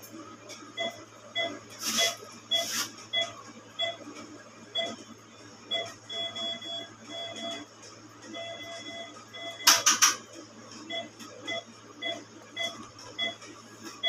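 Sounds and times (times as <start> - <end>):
patient monitor beeping: 0.8 - 4.0, 4.7 - 5.0, 5.7 - 10.2, 10.8 - 14.0.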